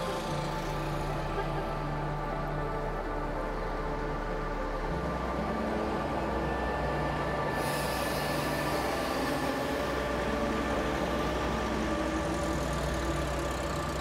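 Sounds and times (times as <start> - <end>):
heavy vehicle humming past: 0.0 - 14.0
hiss of noise: 7.5 - 10.6.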